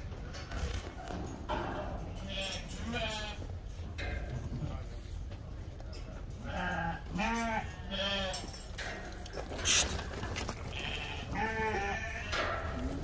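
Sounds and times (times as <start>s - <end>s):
sheep bleating: 10.7s - 12.8s.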